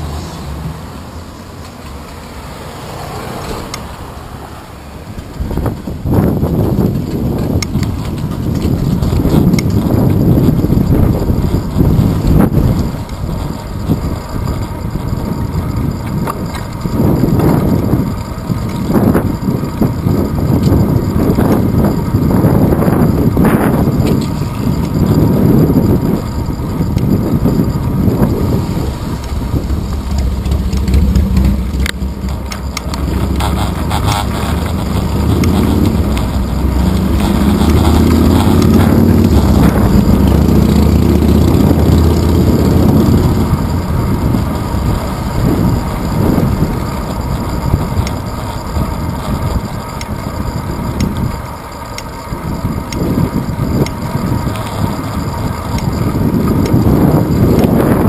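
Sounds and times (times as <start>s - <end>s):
road noise and rattles: 0.0s - 58.0s
steady low hum: 4.6s - 58.0s
wind buffeting microphone: 5.0s - 58.0s.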